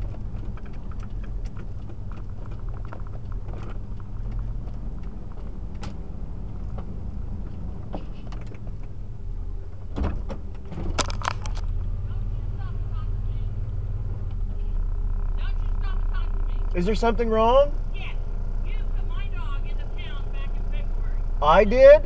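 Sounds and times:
clicks and rattles: 0.0 - 9.0, 10.0 - 11.7
engine and road rumble: 0.0 - 22.0
thump: 9.9 - 11.0.

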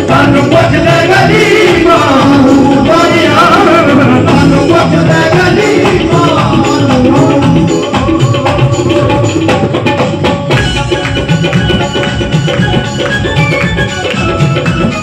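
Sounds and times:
person singing: 0.0 - 11.0
hand drums: 0.0 - 15.0
keyboard: 0.0 - 15.0
hand claps: 10.5 - 15.0.

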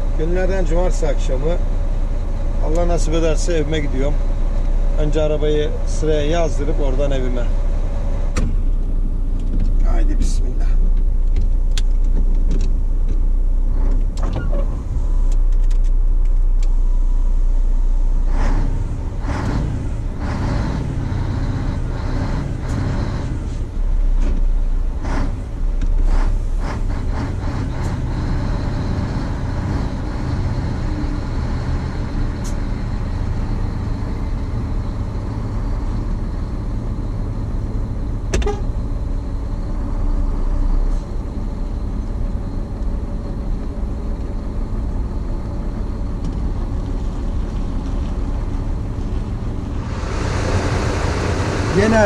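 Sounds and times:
truck diesel engine rumbling: 0.0 - 52.0
sharp clicks and knocks: 10.9 - 14.4.

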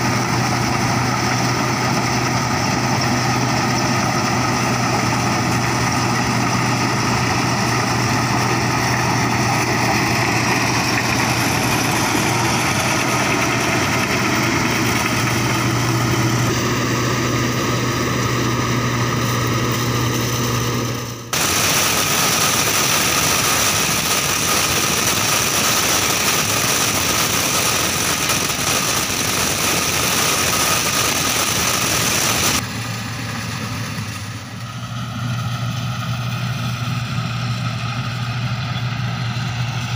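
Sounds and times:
combine harvester engine running: 0.0 - 39.9
hissy steady drone: 21.4 - 33.3.

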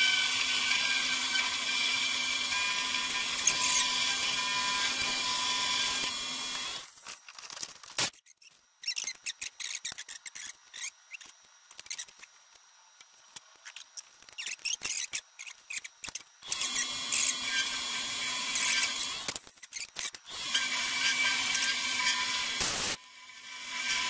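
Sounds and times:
milling machine humming: 0.0 - 7.0, 16.4 - 19.3, 20.3 - 24.0.

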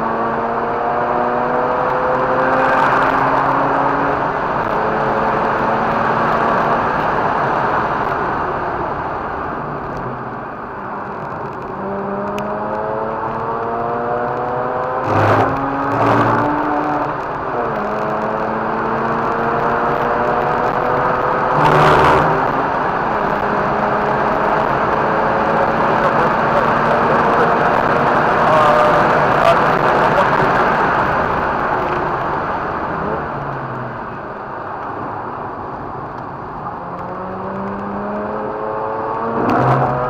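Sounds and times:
wind and tyre noise: 0.0 - 40.0
rotary engine accelerating: 11.8 - 32.2, 36.8 - 40.0.

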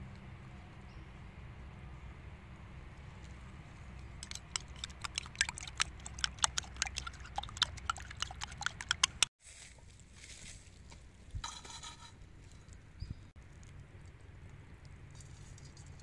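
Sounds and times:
spoon beating eggs in glass bowl: 4.2 - 9.3.

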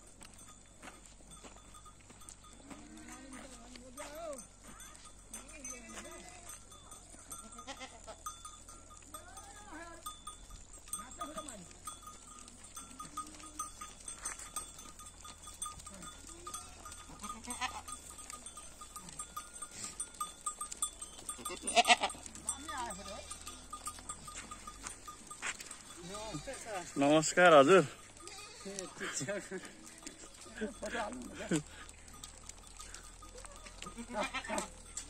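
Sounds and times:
hooves ticking on pavement: 0.0 - 35.0
goats bleating: 7.2 - 8.4, 10.9 - 35.0.

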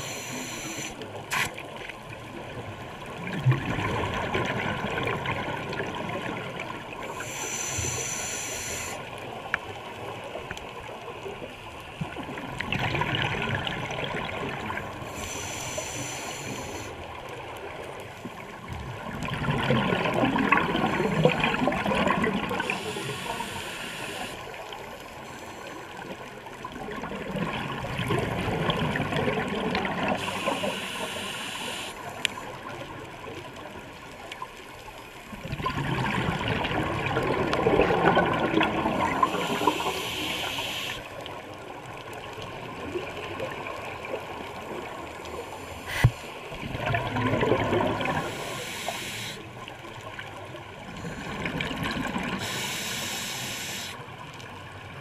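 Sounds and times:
quiet hiss: 0.0 - 3.2, 6.0 - 12.2, 14.8 - 18.8, 22.4 - 26.7, 29.8 - 35.3, 39.0 - 42.8, 48.0 - 50.2, 52.2 - 55.0
regulator bubbles gurgling: 0.0 - 7.7, 12.0 - 15.5, 17.0 - 25.0, 25.9 - 33.8, 35.2 - 40.6, 41.2 - 53.3.

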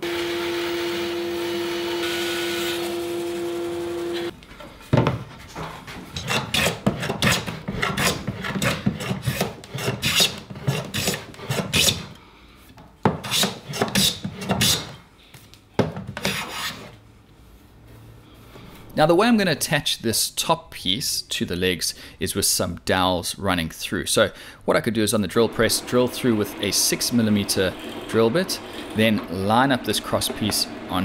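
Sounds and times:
bandsaw cutting wood: 0.0 - 4.3, 6.2 - 12.1, 25.3 - 31.0
hand plane shaving wood: 6.2 - 12.1, 25.4 - 31.0.

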